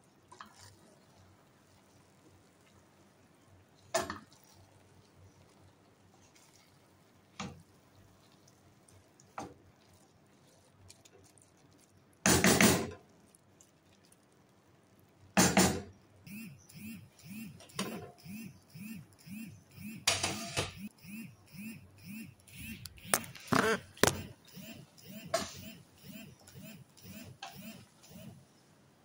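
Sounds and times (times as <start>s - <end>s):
wooden spoon stirring rice: 0.1s - 15.2s.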